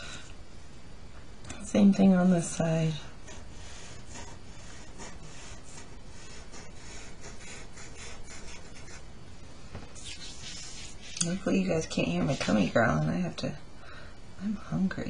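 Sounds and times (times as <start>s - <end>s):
marker scratching on paper: 3.2s - 9.1s, 10.0s - 12.7s.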